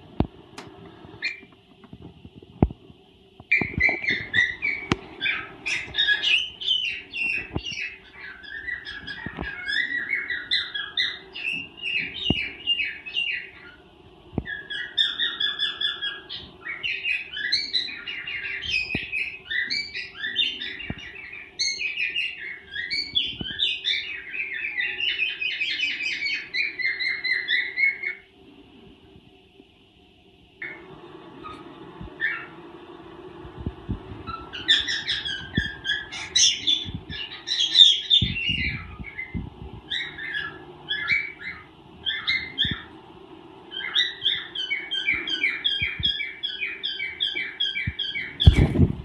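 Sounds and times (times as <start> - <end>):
cockatiel chirping and whistling: 1.2 - 1.5, 3.5 - 13.8, 14.4 - 28.2, 31.4 - 32.6, 34.2 - 43.0, 43.7 - 48.9.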